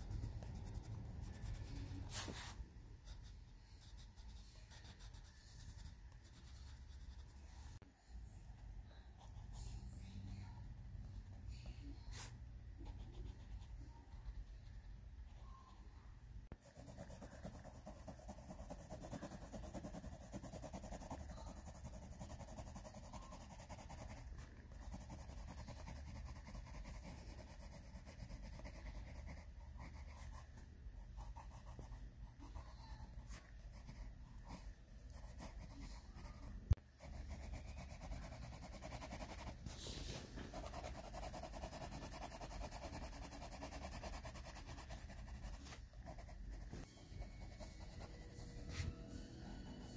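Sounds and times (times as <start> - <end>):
pencil scratching on paper: 0.0 - 7.8, 16.5 - 30.6, 31.2 - 49.1.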